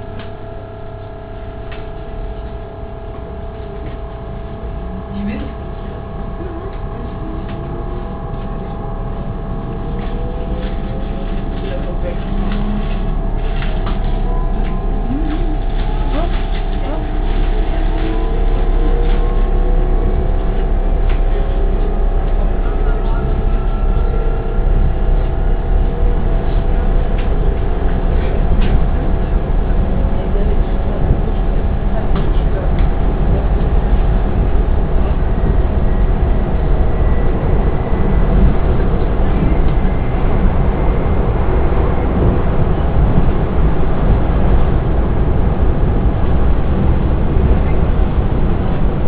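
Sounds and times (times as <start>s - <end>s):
faint hum: 0.0s - 49.0s
train wheels rumbling on track: 0.0s - 49.0s.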